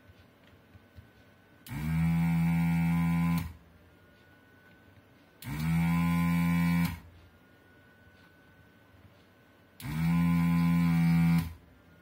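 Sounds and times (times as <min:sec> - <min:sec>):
vacuum pump spinning up and humming: 0:01.7 - 0:03.6, 0:05.4 - 0:07.1, 0:09.8 - 0:11.6.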